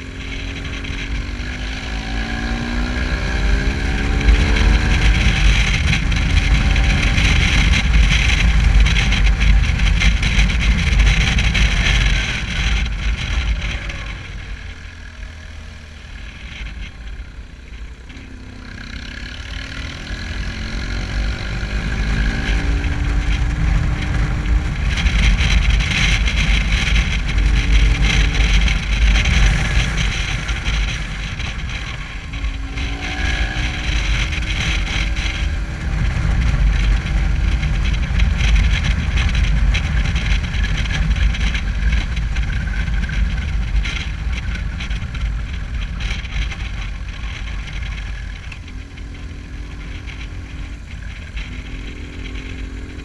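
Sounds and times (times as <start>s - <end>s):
motorcycle engine running: 0.0s - 53.0s
wind noise on microphone: 0.0s - 53.0s.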